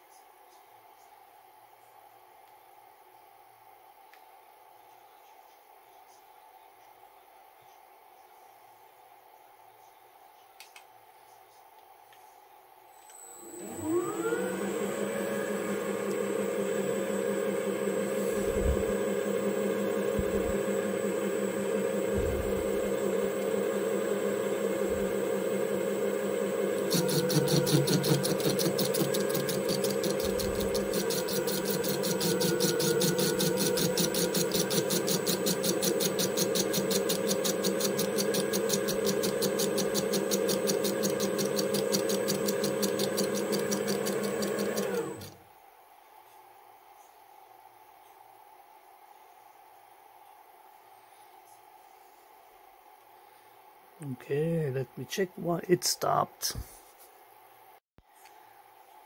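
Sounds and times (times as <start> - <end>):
lathe spindle whine: 13.1 - 45.4
fast even ticking of cutting tool: 26.8 - 45.4.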